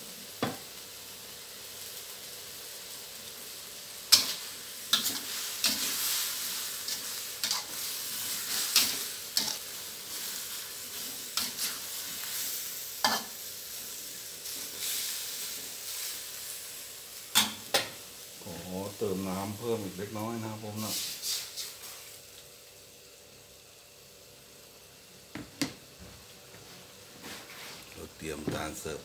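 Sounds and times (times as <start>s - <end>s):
food sizzling in a wok: 0.0s - 29.0s
metal spatula scraping a wok: 4.1s - 13.4s.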